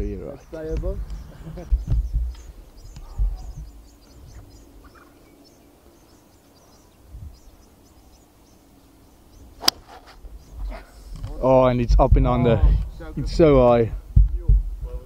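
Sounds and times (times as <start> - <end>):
faint bird chirps: 0.0 - 11.1
golf club striking ball: 9.6 - 10.1.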